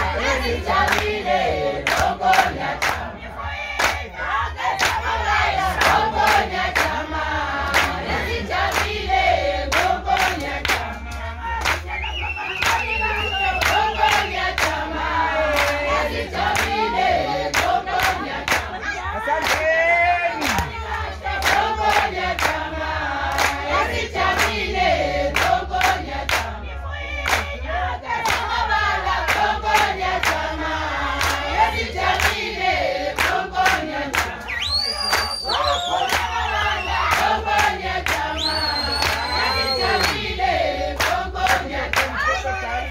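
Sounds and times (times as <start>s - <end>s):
group singing and chanting: 0.0s - 42.9s
hand claps: 0.8s - 1.2s, 1.8s - 3.1s, 3.8s - 4.1s, 4.8s - 5.1s, 5.8s - 7.0s, 7.7s - 9.0s, 9.7s - 14.8s, 15.5s - 15.8s, 16.4s - 16.8s, 17.5s - 18.8s, 19.4s - 19.7s, 20.4s - 22.6s, 23.3s - 23.6s, 24.3s - 24.6s, 25.3s - 26.5s, 27.2s - 27.6s, 28.2s - 28.6s, 29.2s - 30.5s, 31.2s - 31.5s, 32.1s - 32.5s, 33.2s - 40.3s, 41.0s - 42.2s.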